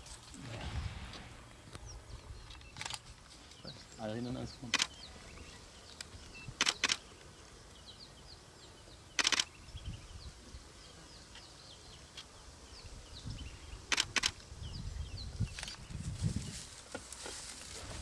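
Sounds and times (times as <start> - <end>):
camera shutters clicking: 2.6 - 3.0, 4.7 - 5.0, 6.6 - 7.0, 9.2 - 9.5, 13.9 - 14.4.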